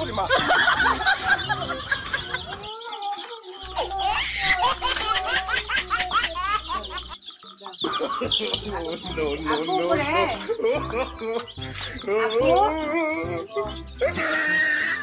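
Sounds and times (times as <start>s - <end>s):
chicks peeping: 0.0s - 15.0s
small child laughing: 0.5s - 7.2s.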